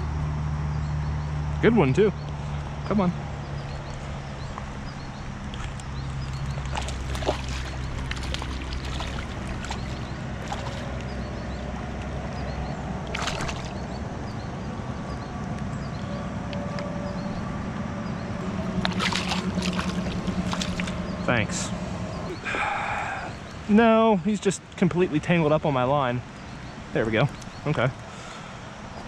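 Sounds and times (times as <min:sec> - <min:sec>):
river water lapping: 0:02.3 - 0:29.0
fish splashing: 0:05.3 - 0:14.0, 0:18.4 - 0:21.2.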